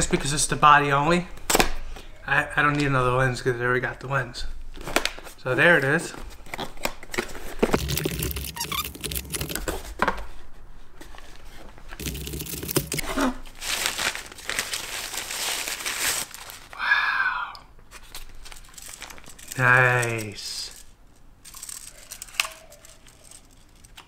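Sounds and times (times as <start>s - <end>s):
plastic wrapper crinkling: 7.7s - 9.8s, 12.0s - 16.8s, 18.1s - 20.3s.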